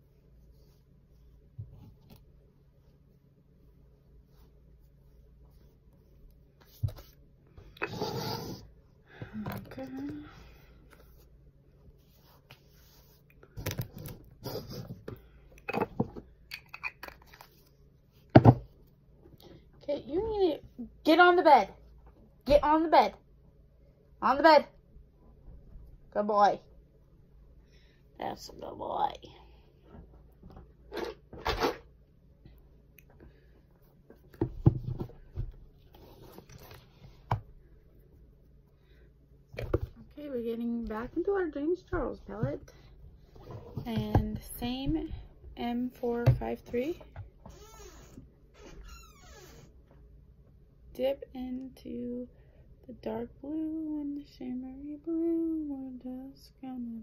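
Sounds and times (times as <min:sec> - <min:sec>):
soft rustle: 0:00.0 - 0:07.3, 0:10.7 - 0:13.5.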